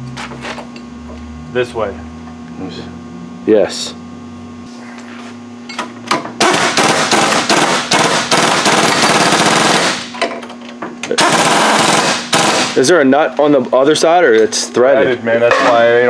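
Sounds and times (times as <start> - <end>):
impact wrench hammering: 5.7 - 12.9.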